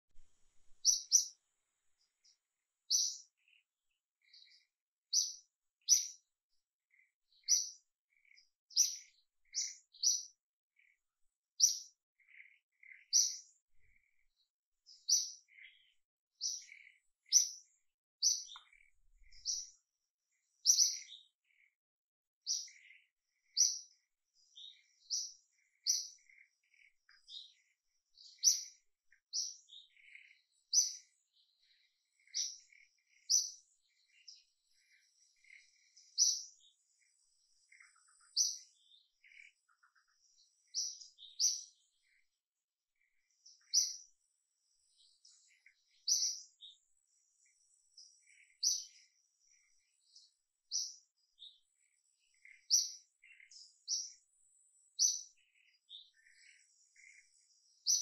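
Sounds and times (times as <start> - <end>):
birds chirping: 0.0 - 21.8, 22.4 - 58.0.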